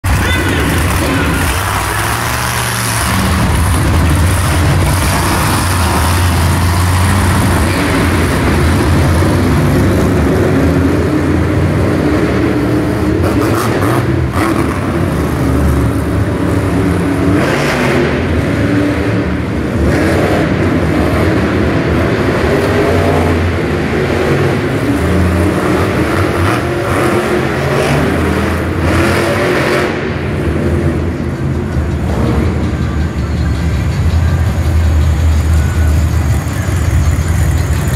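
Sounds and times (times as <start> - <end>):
monster truck engines rumbling: 0.0 - 37.9.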